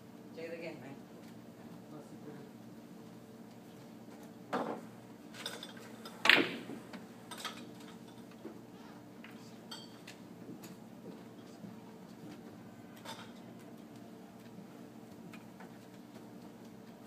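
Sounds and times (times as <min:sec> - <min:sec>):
pool balls knocking together: 0:05.8 - 0:07.1
cue striking ball click: 0:06.2 - 0:07.1.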